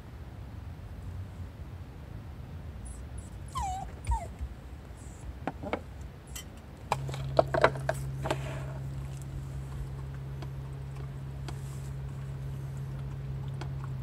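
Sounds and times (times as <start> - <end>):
low hum: 0.0 - 14.0
dog whimpering: 2.8 - 4.4.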